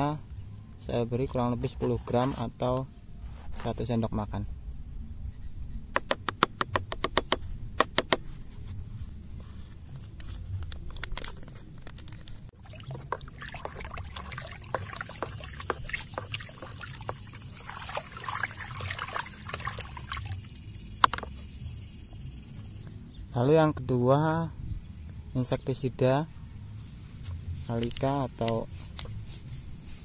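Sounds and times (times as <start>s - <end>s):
stick stirring sloshing water: 12.5s - 20.5s.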